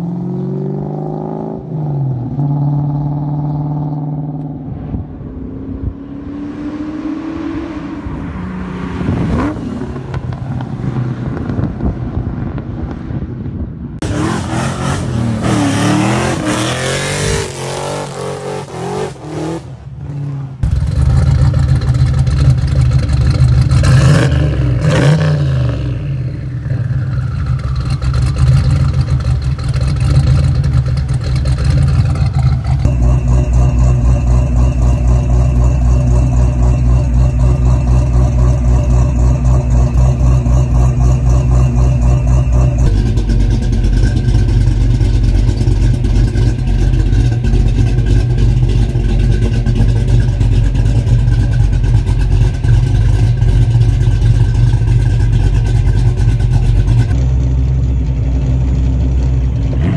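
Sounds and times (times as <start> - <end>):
car engines idling: 19.8 - 59.9.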